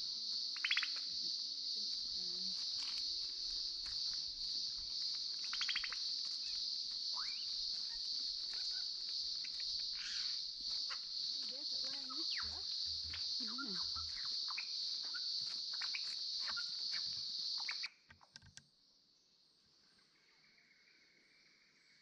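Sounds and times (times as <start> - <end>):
high-pitched insect drone: 0.0 - 18.1
bird rapid trills: 0.6 - 1.0, 5.4 - 17.9.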